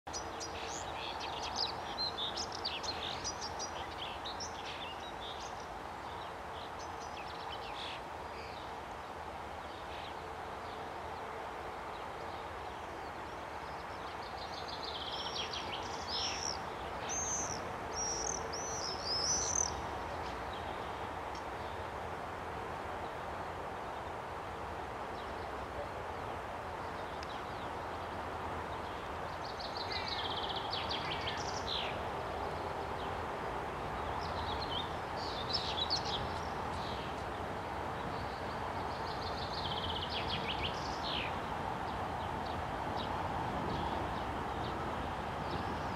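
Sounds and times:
small birds singing: 0.1 - 22.0, 26.8 - 33.2, 33.9 - 44.8, 45.4 - 45.9.

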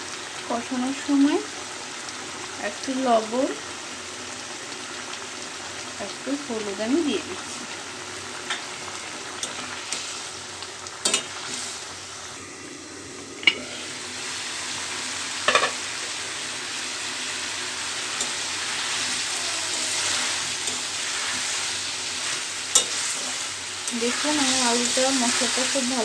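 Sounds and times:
potatoes sizzling in a pan: 0.0 - 26.0
metal ladle knocking pan: 15.4 - 15.8.

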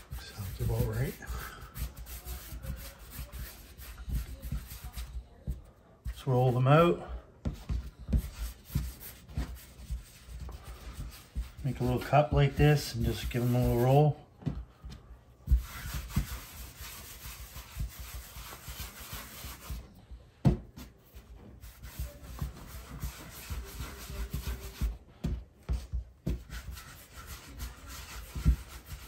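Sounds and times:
dough rubbing on wood: 0.0 - 14.2, 14.8 - 20.0, 20.7 - 29.0.

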